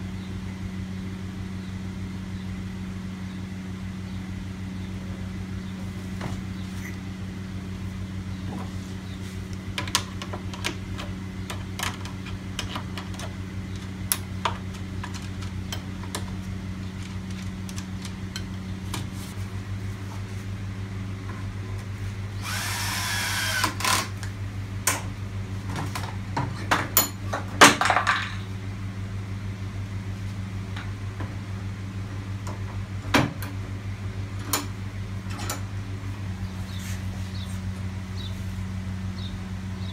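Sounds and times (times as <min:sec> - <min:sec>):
steady low hum: 0:00.0 - 0:39.9
clicks and knocks of handling: 0:09.5 - 0:19.1
scraping and rustling: 0:14.5 - 0:20.5.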